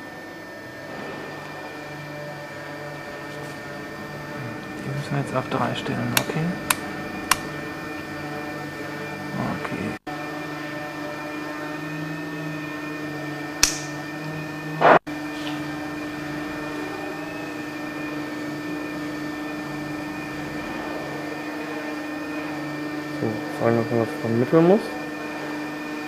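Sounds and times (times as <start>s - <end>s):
electrical machine hum: 0.0s - 26.0s
side cutters snipping wire: 6.1s - 7.6s, 13.6s - 14.0s.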